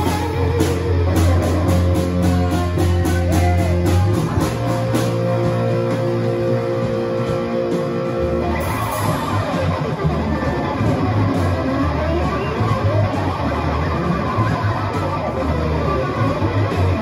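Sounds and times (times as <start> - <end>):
bass guitar: 0.0 - 17.0
electric guitar long notes: 0.0 - 17.0.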